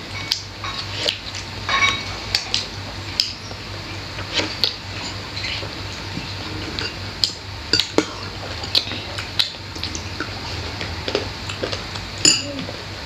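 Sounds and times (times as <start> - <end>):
metal spoon clinking on dishes: 1.7 - 2.1, 12.2 - 12.6.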